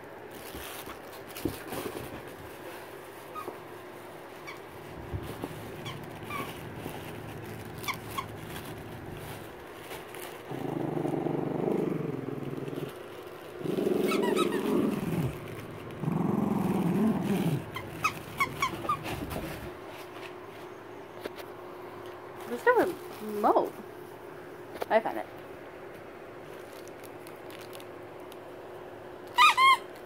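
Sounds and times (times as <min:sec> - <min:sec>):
dog growling: 0:05.2 - 0:09.4, 0:10.4 - 0:19.4
toy squeaks: 0:29.3 - 0:29.9.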